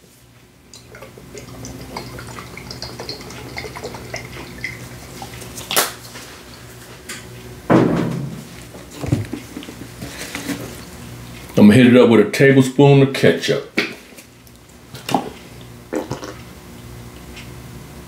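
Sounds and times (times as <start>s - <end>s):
loud bump: 7.7s - 8.5s.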